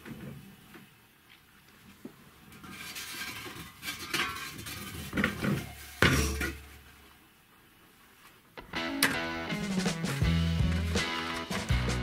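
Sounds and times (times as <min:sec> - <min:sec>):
steel tank scraping on wood: 0:02.5 - 0:06.8.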